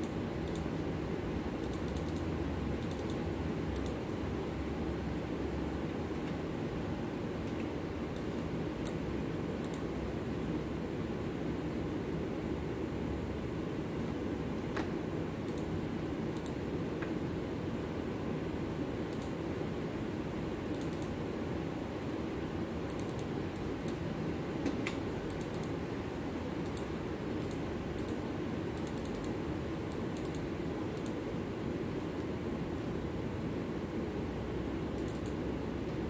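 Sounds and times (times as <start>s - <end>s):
click: 0.0s - 0.7s, 1.6s - 3.2s, 3.8s - 4.0s, 7.4s - 9.0s, 9.6s - 9.9s, 15.5s - 15.7s, 16.4s - 17.1s, 19.1s - 19.4s, 20.7s - 21.1s, 22.9s - 24.0s, 24.6s - 25.8s, 26.6s - 28.2s, 28.8s - 31.2s, 35.0s - 35.4s.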